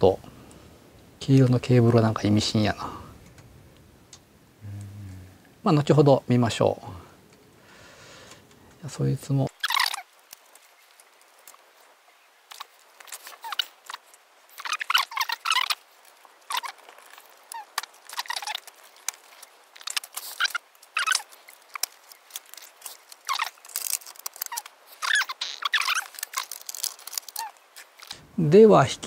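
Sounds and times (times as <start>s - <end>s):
camcorder parts clicking and rattling: 16.5s - 28.1s.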